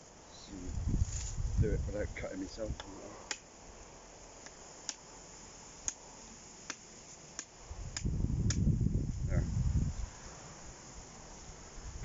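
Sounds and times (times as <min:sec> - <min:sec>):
blade chopping into branch: 0:06.6 - 0:08.7.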